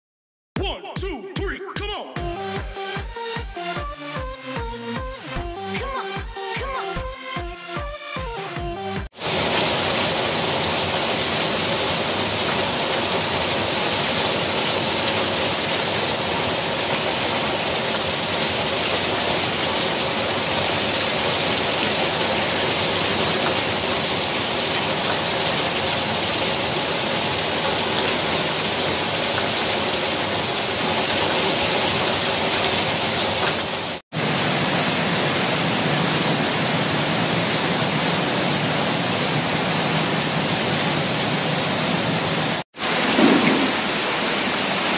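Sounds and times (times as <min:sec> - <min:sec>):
water pouring off roof: 0:09.1 - 0:41.4, 0:42.0 - 0:44.9
heavy rain roaring: 0:09.1 - 0:44.9.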